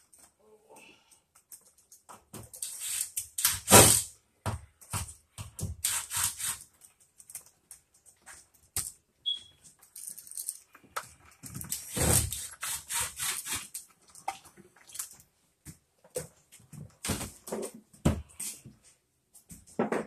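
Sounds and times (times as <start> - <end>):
screwdriver clicks and scrapes: 2.5 - 3.7, 5.8 - 6.7.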